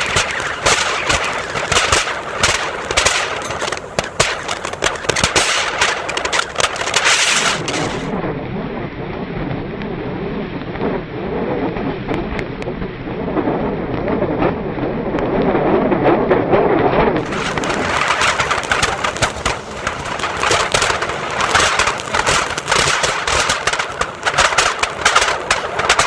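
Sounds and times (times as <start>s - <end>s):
firework hissing and crackling: 0.0s - 8.2s, 17.2s - 26.0s
table fan spinning: 0.0s - 8.2s, 17.2s - 26.0s.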